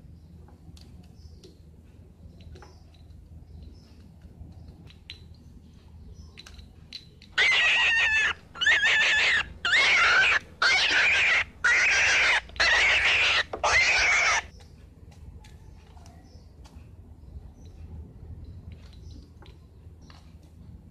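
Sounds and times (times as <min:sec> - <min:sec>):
animal squealing: 0:07.4 - 0:14.5.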